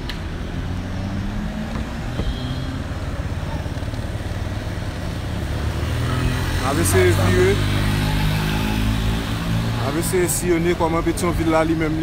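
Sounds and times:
road rumble: 0.0 - 12.0
vehicle engine humming: 0.0 - 12.0.

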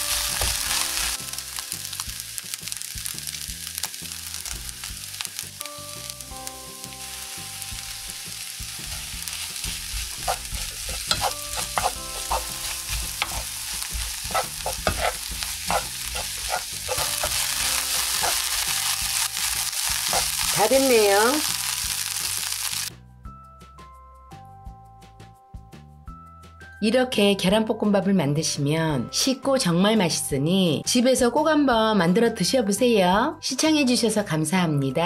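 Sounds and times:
rice sizzling in a frying pan: 0.0 - 22.9
spatula scraping and tapping pan: 8.8 - 18.8, 20.0 - 20.6.

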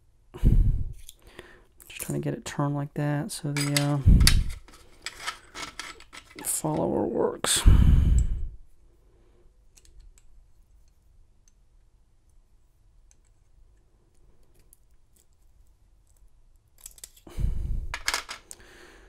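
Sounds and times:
lock pins clattering: 3.5 - 6.9, 18.0 - 18.6.

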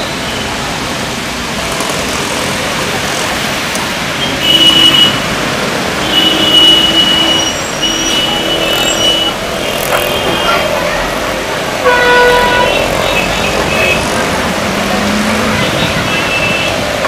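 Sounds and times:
heavy rain hissing: 0.0 - 17.0
tyres on flooded road: 0.0 - 17.0
vehicle horn: 4.2 - 5.3, 6.0 - 10.8, 11.8 - 14.3.

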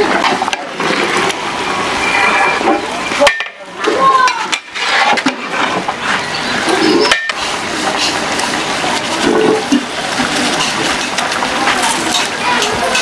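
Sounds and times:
rice boiling in water: 0.0 - 13.0.

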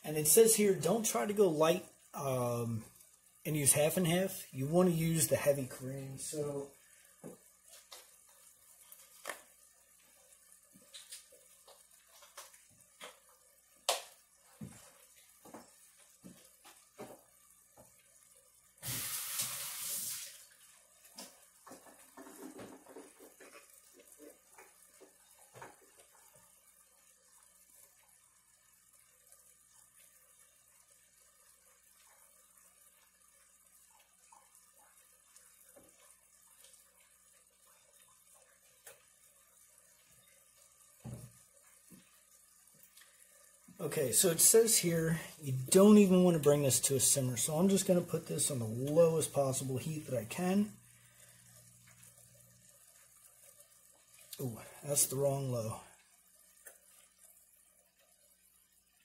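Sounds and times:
kitchen tap running: 0.0 - 59.0.

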